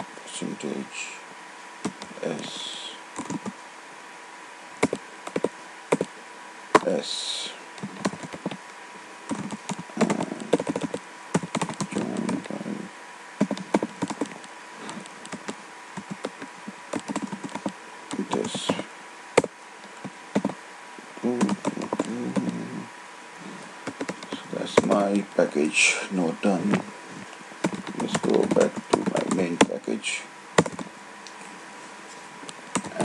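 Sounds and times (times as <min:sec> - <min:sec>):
keyboard typing: 0:03.2 - 0:03.6, 0:04.8 - 0:06.1, 0:07.8 - 0:08.6, 0:09.3 - 0:12.6, 0:13.4 - 0:18.8, 0:19.4 - 0:20.6, 0:21.3 - 0:22.6, 0:23.8 - 0:25.1, 0:27.6 - 0:29.7, 0:30.6 - 0:30.9, 0:32.8 - 0:33.0.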